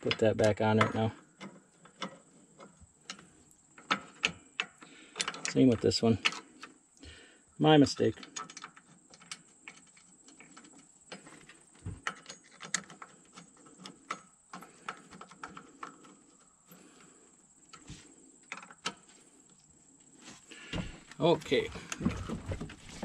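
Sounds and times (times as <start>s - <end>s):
small parts being handled: 0.0s - 6.8s.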